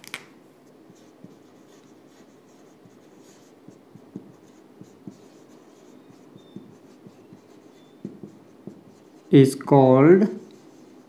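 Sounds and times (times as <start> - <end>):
marker writing on a whiteboard: 0.6 - 11.0
marker tapping on whiteboard: 0.9 - 9.0.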